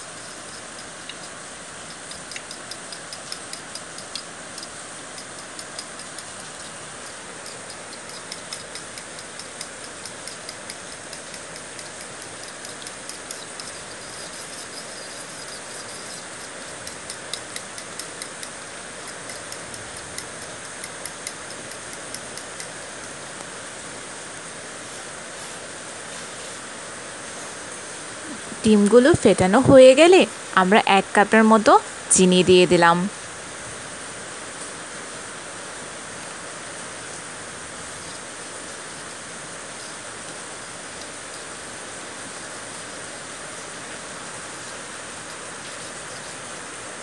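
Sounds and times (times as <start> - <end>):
background hiss: 0.0 - 47.0
utensil clicking against bowl: 0.6 - 22.8.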